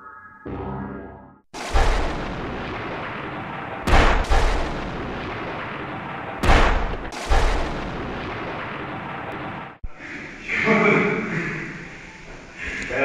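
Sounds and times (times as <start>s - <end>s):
loud booming blasts: 1.5s - 9.8s.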